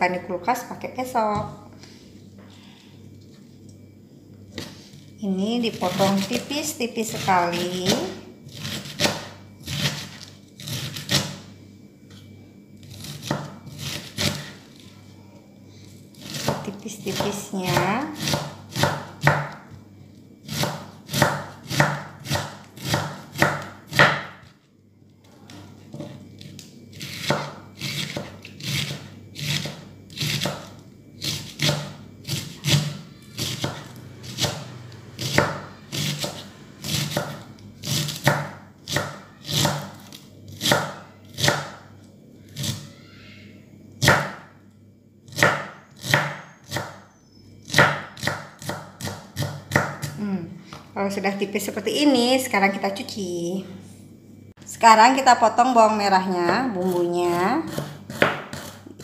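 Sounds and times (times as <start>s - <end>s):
knife chopping cabbage on wood: 7.1s - 11.4s, 12.9s - 14.6s, 16.2s - 19.6s, 20.4s - 24.5s, 25.5s - 34.6s, 35.2s - 41.8s, 44.0s - 44.5s, 45.3s - 47.0s, 47.6s - 50.2s, 57.6s - 59.0s.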